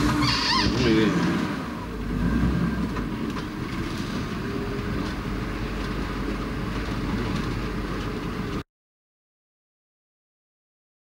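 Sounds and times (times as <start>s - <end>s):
vehicle engine running: 0.0s - 8.6s.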